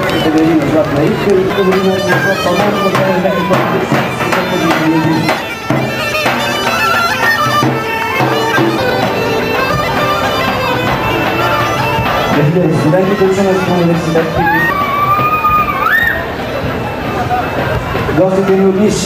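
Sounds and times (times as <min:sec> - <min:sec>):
accordion: 0:00.0 - 0:14.7
bagpipes with drone: 0:00.0 - 0:19.0.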